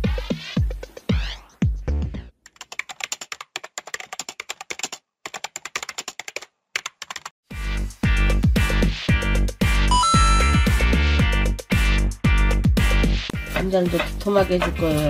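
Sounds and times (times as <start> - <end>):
computer keyboard typing: 2.5 - 7.3
electronic music with falling bass: 9.9 - 11.2.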